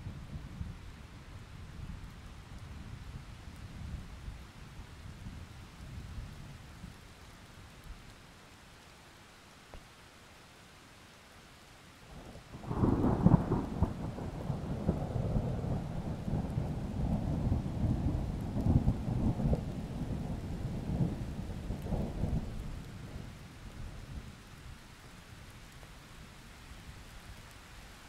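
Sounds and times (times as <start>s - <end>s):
light steady rain: 0.0s - 28.0s
thunder rumbling: 12.6s - 23.4s.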